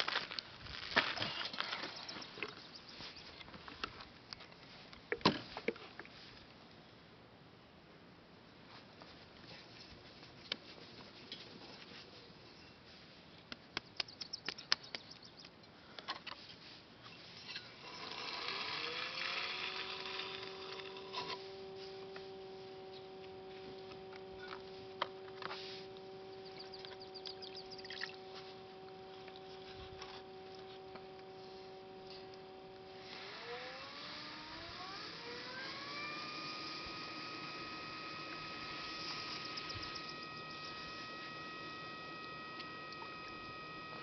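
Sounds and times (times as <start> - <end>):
small sharp clicks and taps: 13.5 - 16.4
potter's wheel motor whirring: 17.5 - 44.0.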